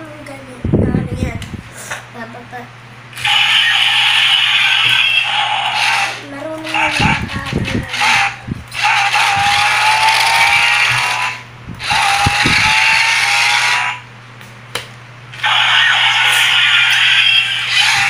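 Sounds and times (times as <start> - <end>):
toy electric motors whirring: 3.2 - 14.0, 15.4 - 18.0.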